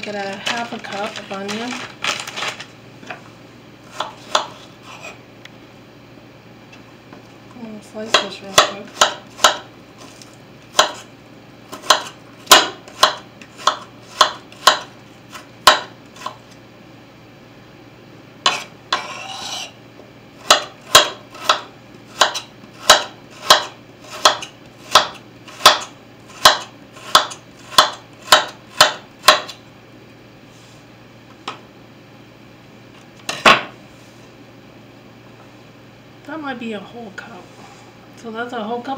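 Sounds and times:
knife scraping: 3.8s - 5.2s, 18.4s - 19.8s
knife chopping on wooden board: 3.9s - 5.2s, 8.1s - 9.7s, 10.7s - 11.1s, 11.7s - 16.4s, 18.4s - 19.7s, 20.4s - 29.6s.

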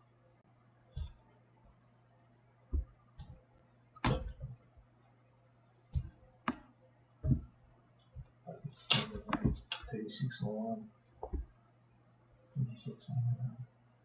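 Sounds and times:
faint low hum: 0.0s - 14.0s
computer mouse clicks: 8.9s - 9.9s.

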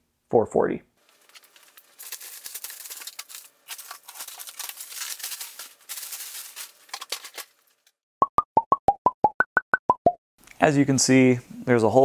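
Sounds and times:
plastic stretch wrap crinkling: 1.0s - 7.9s.

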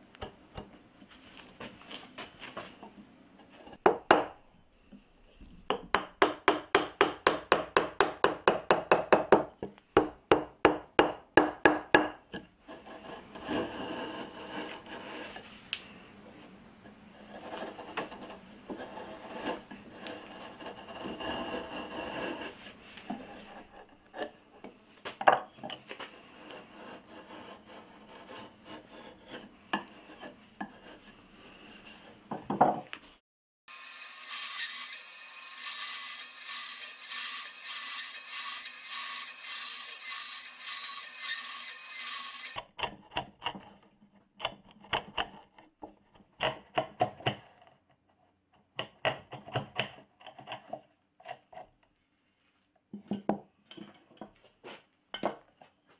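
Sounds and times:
chisel scraping wood: 12.6s - 15.6s, 17.2s - 24.4s, 26.1s - 32.2s
router plane scraping wood: 12.7s - 15.6s, 17.1s - 24.3s, 26.0s - 32.2s
scroll saw cutting wood: 33.7s - 42.7s.

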